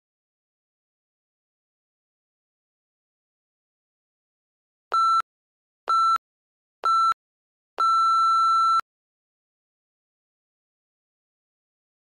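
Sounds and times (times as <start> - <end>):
timer beeps: 4.9 - 5.2, 5.9 - 6.2, 6.8 - 7.2, 7.8 - 8.8.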